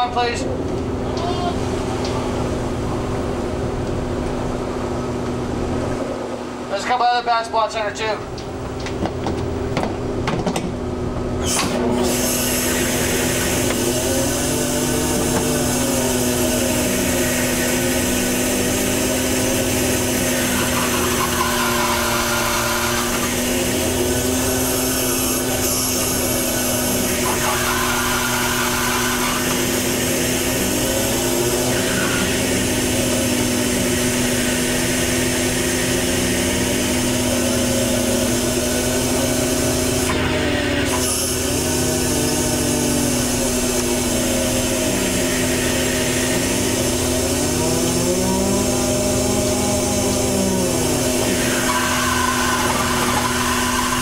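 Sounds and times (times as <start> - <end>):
boat engine drone: 0.0 - 54.0
high-pitched whine: 11.4 - 54.0.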